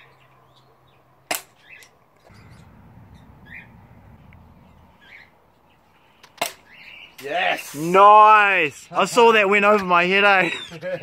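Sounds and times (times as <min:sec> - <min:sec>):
small birds chirping: 0:00.0 - 0:07.6, 0:08.7 - 0:11.0
low rumble: 0:02.3 - 0:05.0.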